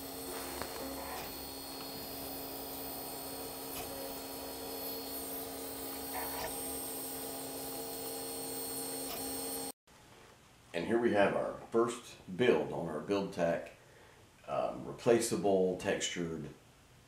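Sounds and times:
printer fans and motors humming: 0.0s - 9.7s.

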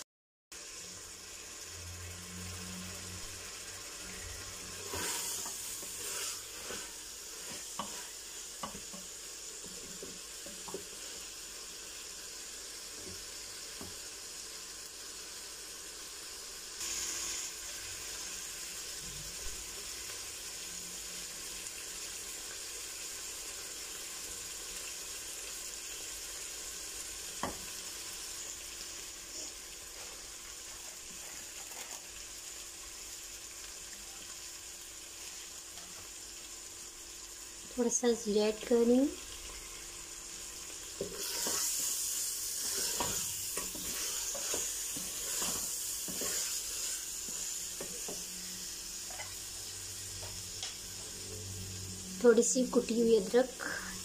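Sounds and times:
meat and potatoes sizzling: 0.5s - 54.0s
wooden spoon scraping a pot: 4.7s - 8.9s, 41.0s - 48.2s.

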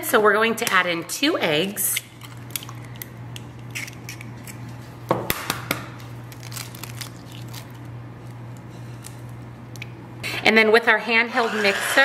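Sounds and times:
eggshells cracking: 6.3s - 7.8s
shell crackles: 6.3s - 8.4s
steady low hum: 7.2s - 12.0s.

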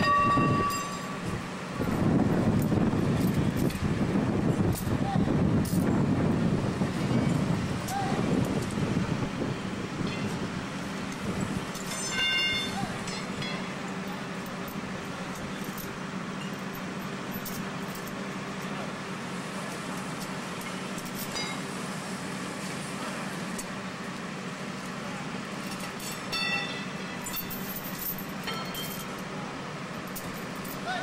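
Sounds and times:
engine humming: 0.0s - 31.0s
constant hiss: 6.5s - 31.0s.

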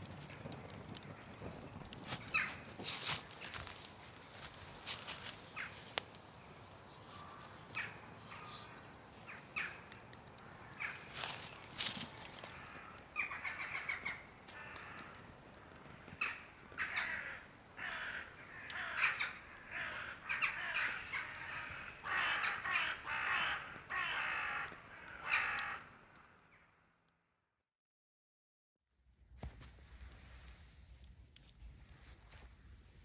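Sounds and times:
crows cawing: 2.0s - 3.7s, 4.4s - 6.1s, 7.0s - 26.6s.

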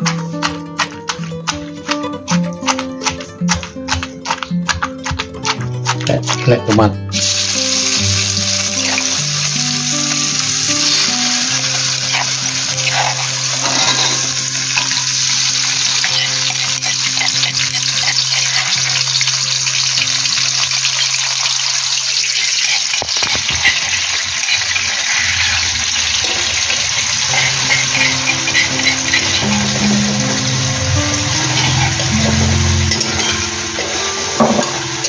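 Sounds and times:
vegetables sizzling in oil: 7.1s - 35.0s
metal spatula scraping a wok: 12.0s - 15.2s, 22.2s - 30.7s, 31.3s - 34.8s.

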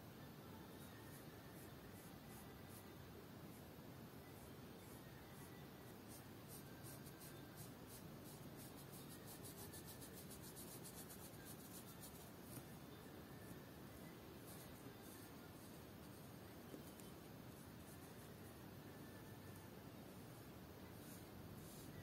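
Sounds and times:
brush scratching on paper: 6.1s - 12.8s, 13.9s - 18.6s, 20.1s - 22.0s.

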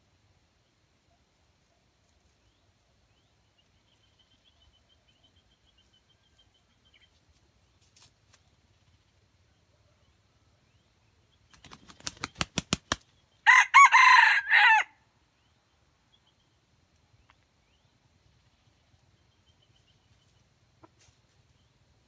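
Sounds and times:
rooster wings flapping: 11.5s - 13.0s
rooster crowing: 13.4s - 15.0s.

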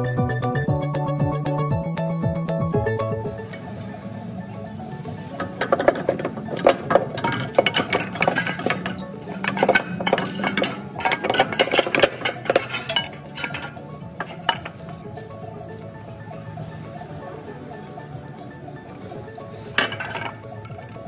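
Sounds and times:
background music: 0.0s - 21.0s
metallic clinks and taps: 5.4s - 15.0s.

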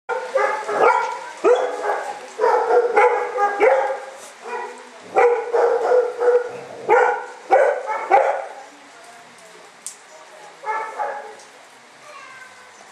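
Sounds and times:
dog barking: 0.1s - 8.6s, 10.6s - 11.4s.

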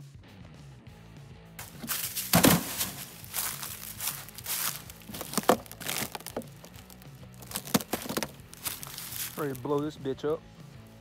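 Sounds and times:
footsteps crunching dry leaves: 1.6s - 9.8s.

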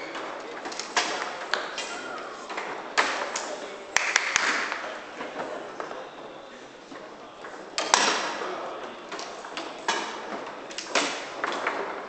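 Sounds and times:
foosball rods shifting: 0.0s - 3.6s, 7.4s - 12.0s
foosball ball clacking: 0.0s - 5.5s, 7.4s - 12.0s.

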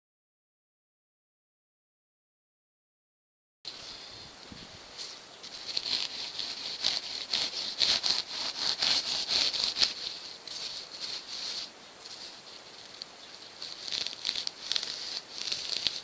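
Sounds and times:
handsaw rasping through foam: 5.6s - 12.4s, 13.6s - 16.0s.

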